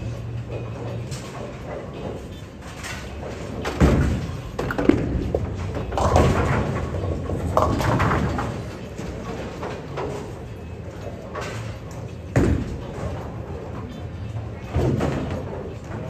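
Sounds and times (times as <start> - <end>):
bowling balls crashing into pins: 3.2 - 10.4, 12.3 - 13.4.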